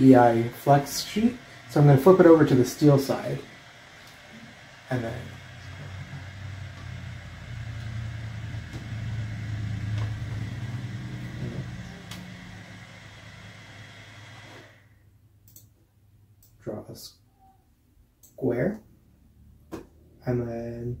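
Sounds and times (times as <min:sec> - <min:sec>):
printer humming: 0:00.0 - 0:15.0.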